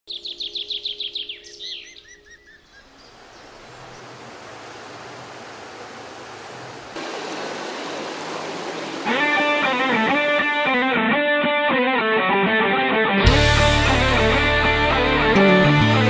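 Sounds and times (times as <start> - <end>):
bird trilling: 0.1 - 4.1
running water rushing: 2.9 - 10.8.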